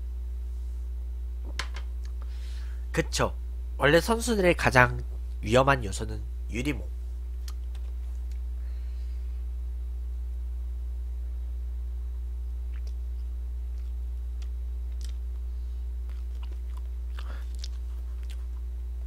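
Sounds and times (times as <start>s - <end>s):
steady low hum: 0.0s - 19.0s
man chewing: 7.4s - 8.5s, 12.6s - 18.9s.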